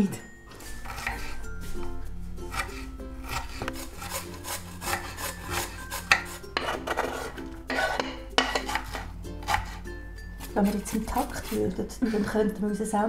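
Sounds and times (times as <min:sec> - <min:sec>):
potato rasping on metal grater: 0:00.9 - 0:01.4, 0:02.5 - 0:11.9.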